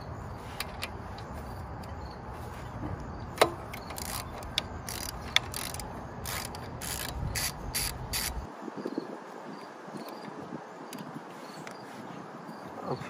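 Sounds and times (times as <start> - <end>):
socket ratchet clicking: 3.4 - 8.5.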